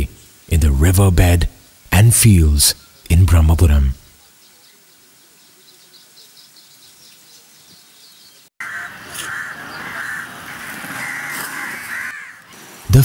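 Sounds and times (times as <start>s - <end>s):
outdoor background noise: 0.0s - 13.0s
high bird chirps: 4.0s - 12.4s
crows cawing: 8.6s - 12.6s.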